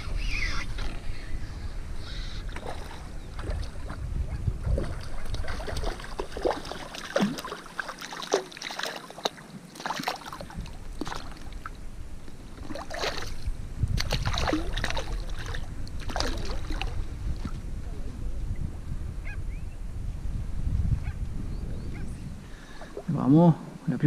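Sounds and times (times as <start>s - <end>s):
fish splashing in shallow water: 2.0s - 17.6s.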